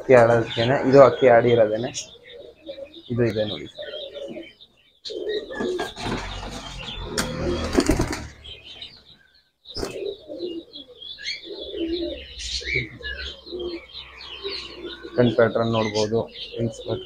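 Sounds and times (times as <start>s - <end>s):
pigeon cooing: 0.0s - 17.0s
small birds chirping: 0.0s - 17.0s
pigeon wings flapping: 7.3s - 8.3s.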